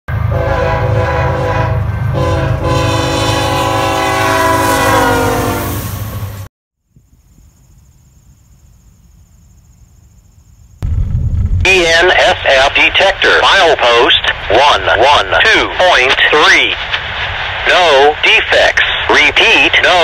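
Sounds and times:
locomotive air horn blast: 0.2s - 6.0s.

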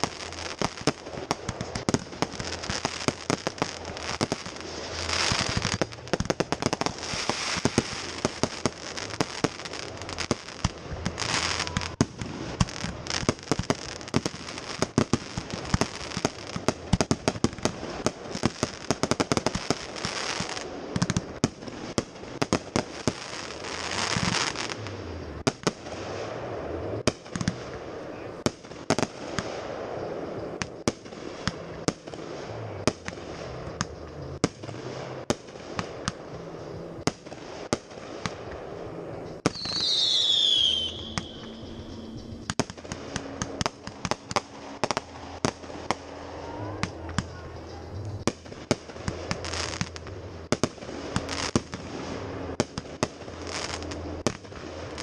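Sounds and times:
fireworks bangs and pops: 0.0s - 55.0s
fireworks crackling: 0.0s - 55.0s
hissing rush: 0.0s - 55.0s
descending whistle: 39.5s - 42.6s.

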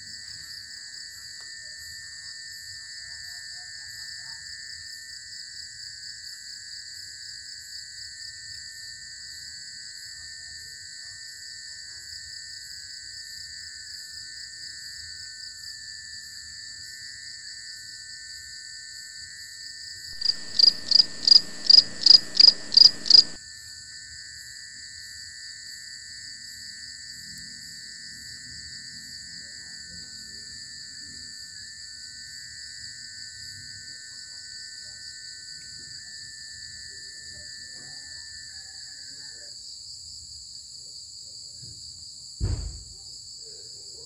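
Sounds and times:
crickets trilling: 20.2s - 23.4s
quick cricket chirps: 20.2s - 23.4s.

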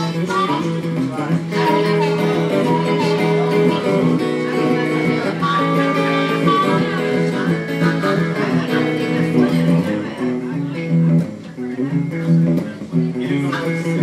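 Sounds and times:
harmonica: 0.0s - 9.9s
electric guitar: 0.0s - 14.0s.

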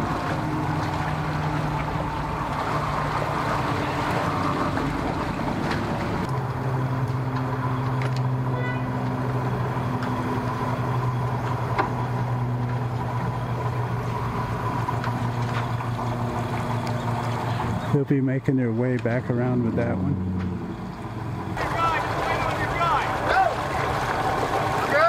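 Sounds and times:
outboard motor idling: 0.0s - 25.0s
truck engine running: 0.0s - 25.0s.

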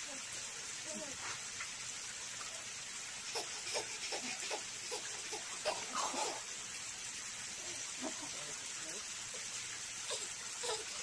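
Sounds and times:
steady hiss: 0.0s - 11.0s
baby giggling: 10.1s - 11.0s.

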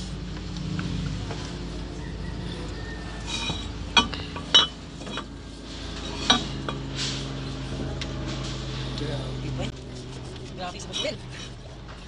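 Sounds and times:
steady low hum: 0.0s - 12.0s
metal liner clinking against engine block: 3.3s - 5.4s.

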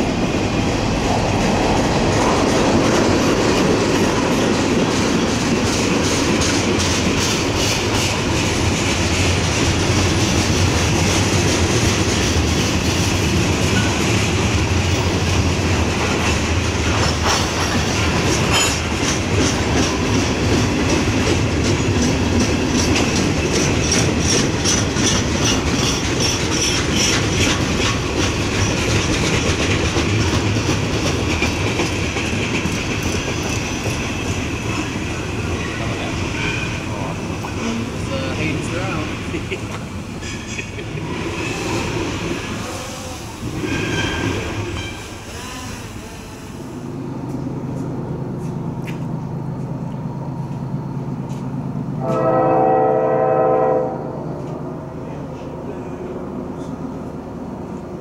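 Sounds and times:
freight train rolling past: 0.0s - 58.0s
wheels clattering over rail joints: 1.1s - 42.6s.

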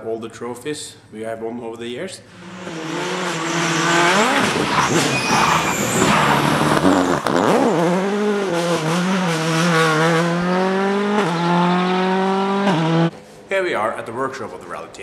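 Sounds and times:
rally car engine at full throttle: 2.3s - 13.4s.

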